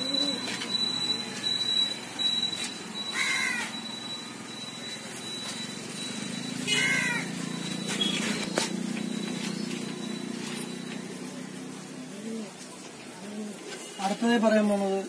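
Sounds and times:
animal calling: 6.4 - 8.4.

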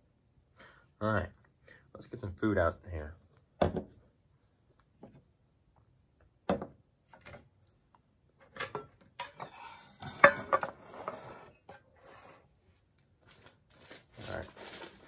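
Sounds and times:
metal clinking and scraping: 8.6 - 11.3.

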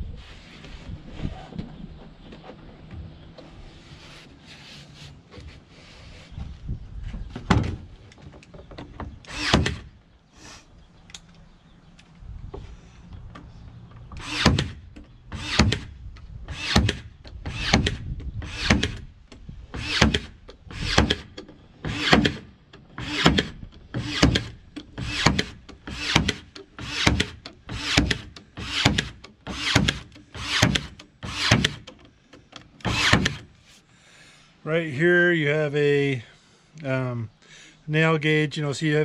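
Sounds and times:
nail gun firing into wood: 9.3 - 9.9, 14.2 - 14.8, 15.4 - 15.9, 16.5 - 19.1, 19.8 - 31.9, 32.8 - 33.5.

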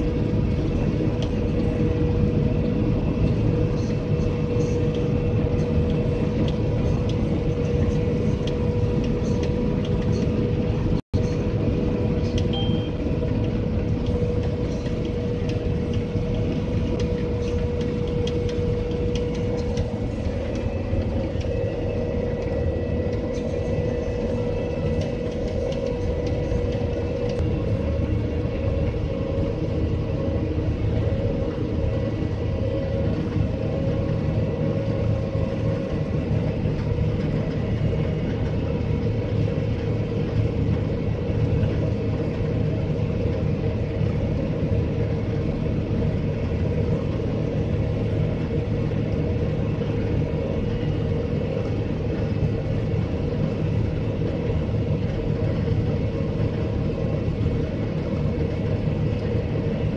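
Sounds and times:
combine harvester drone: 0.0 - 59.9
faint steady whine: 0.0 - 59.9.

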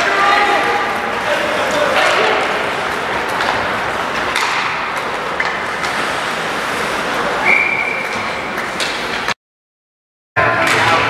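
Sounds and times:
hockey sticks clacking on puck: 0.0 - 9.4, 10.6 - 11.0
skating and crowd noise: 0.0 - 9.4, 10.4 - 11.0
referee's whistle: 7.4 - 8.2.

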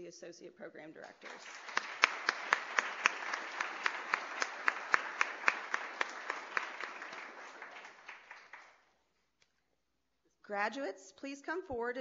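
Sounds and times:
close clapper clapping: 1.1 - 8.9
audience applauding: 1.2 - 8.9.

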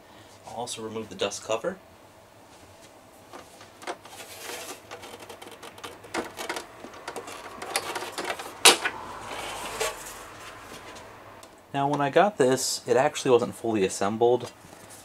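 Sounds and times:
plastic clicks and scrapes: 3.3 - 8.9.

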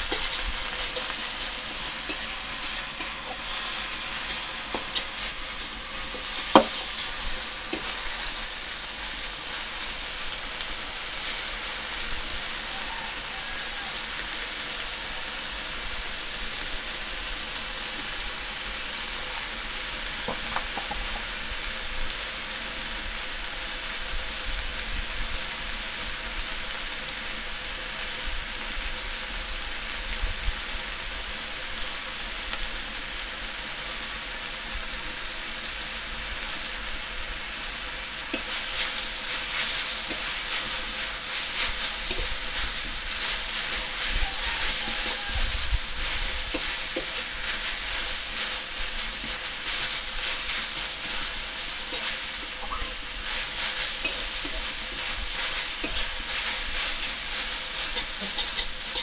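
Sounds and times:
metal spatula scraping pan: 0.0 - 8.7, 38.4 - 59.0
greens sizzling in pan: 0.0 - 59.0.

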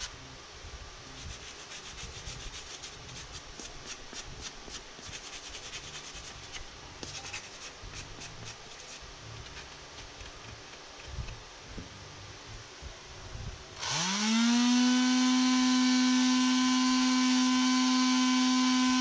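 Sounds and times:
sanding block rasping: 1.2 - 9.7.

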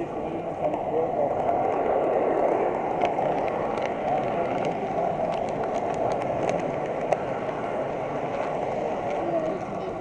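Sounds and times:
light clicks of train: 0.6 - 0.8, 3.0 - 7.2.

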